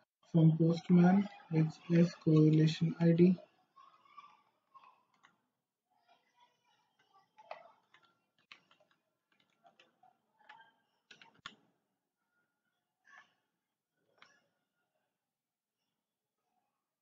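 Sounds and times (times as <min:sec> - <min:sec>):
keyboard typing: 0:05.1 - 0:05.4, 0:06.7 - 0:11.7.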